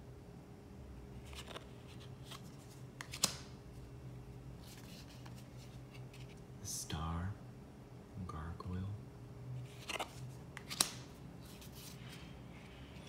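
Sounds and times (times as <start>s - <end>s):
cards scraping and flicking: 1.2s - 3.6s, 9.7s - 12.3s
card snap: 3.0s - 3.6s, 9.8s - 11.1s.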